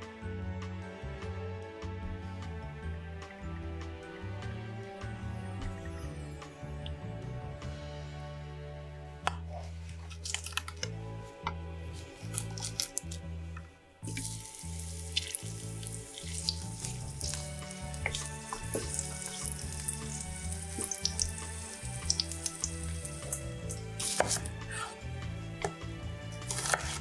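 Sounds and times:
wooden spatula scraping: 0:09.4 - 0:13.2, 0:23.7 - 0:25.0, 0:26.3 - 0:27.0
knife cutting onion: 0:12.0 - 0:13.2, 0:23.1 - 0:27.0
garlic sizzling in oil: 0:14.0 - 0:24.6, 0:26.4 - 0:27.0
knife crushing garlic on board: 0:23.3 - 0:24.9, 0:25.6 - 0:27.0.

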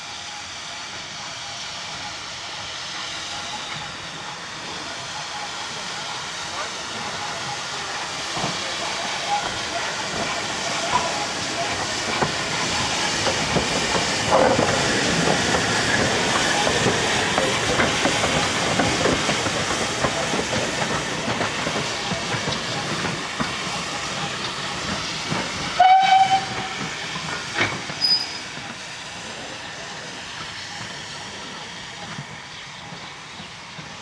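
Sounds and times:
steam hissing: 0:00.0 - 0:34.0
train wheels clicking over rail joints: 0:01.8 - 0:34.0
steam whistle toot: 0:25.8 - 0:26.9.

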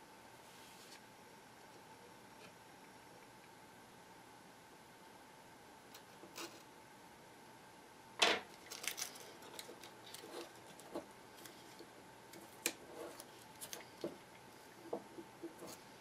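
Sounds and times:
hands handling adhesive tape: 0:08.4 - 0:14.2.

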